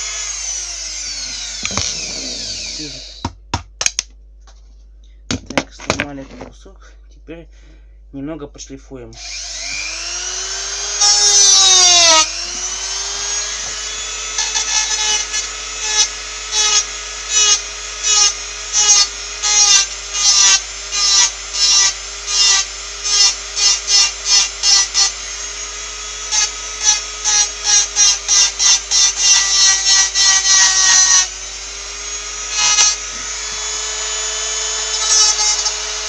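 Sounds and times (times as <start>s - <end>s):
rotary tool whining: 0.0s - 3.3s, 9.2s - 36.0s
bit grinding against piece: 0.4s - 3.3s.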